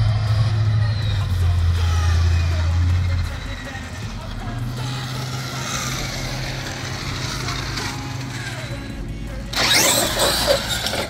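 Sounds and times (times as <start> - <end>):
toy truck tyres skidding on asphalt: 4.9 - 8.8, 9.5 - 11.0.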